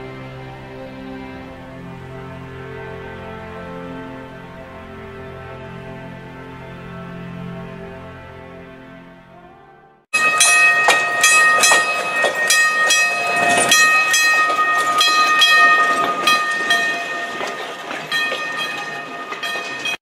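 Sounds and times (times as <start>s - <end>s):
high-pitched tones: 10.2s - 20.0s
wheels clicking over rail joints: 10.2s - 20.0s.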